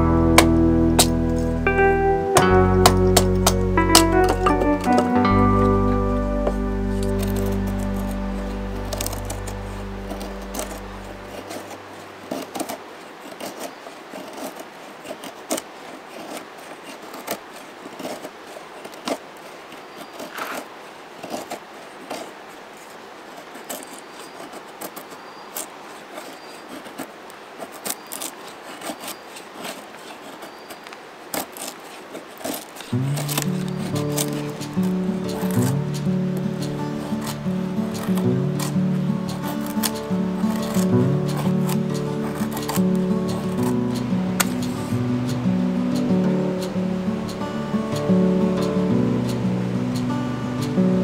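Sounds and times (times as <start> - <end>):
music: 0.0 - 11.7, 33.0 - 51.0
knife scraping wood: 2.4 - 50.8.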